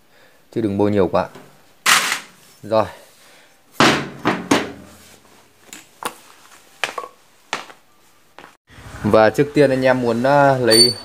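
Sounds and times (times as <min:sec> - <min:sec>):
loud knock: 0:03.8 - 0:04.9.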